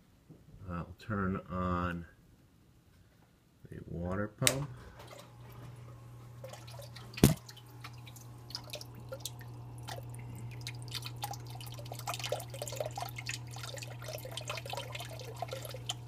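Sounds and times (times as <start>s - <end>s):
water pump humming: 4.5s - 16.0s
water splashing and trickling: 6.4s - 16.0s.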